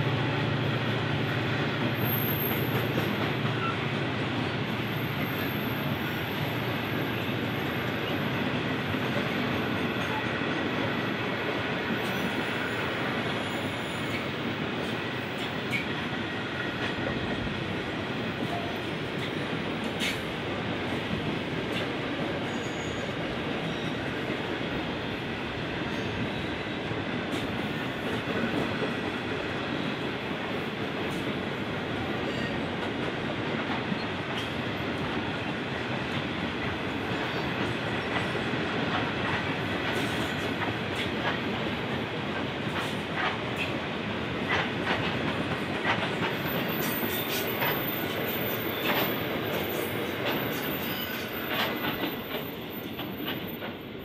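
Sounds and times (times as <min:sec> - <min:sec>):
faint high wheel squeal: 0:22.5 - 0:24.0, 0:49.7 - 0:51.5
train wheels rumbling over rail joints: 0:36.2 - 0:54.0.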